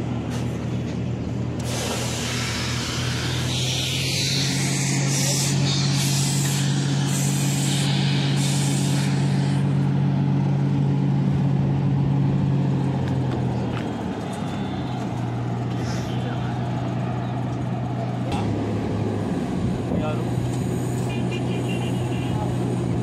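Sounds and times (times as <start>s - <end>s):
engine humming: 0.0s - 23.0s
high hissing noise: 1.6s - 10.0s.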